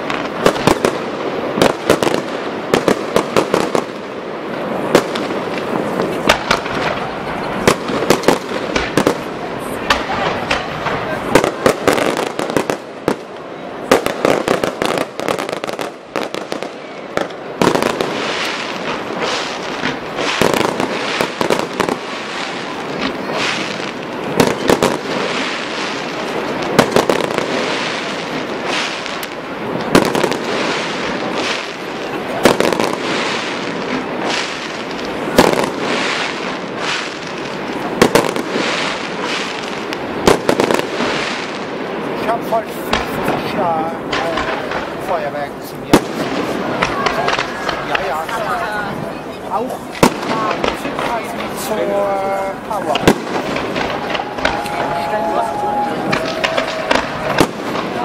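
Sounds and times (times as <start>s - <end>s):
fireworks crackling: 0.0s - 58.0s
firework shells bursting: 4.8s - 42.0s, 52.6s - 58.0s.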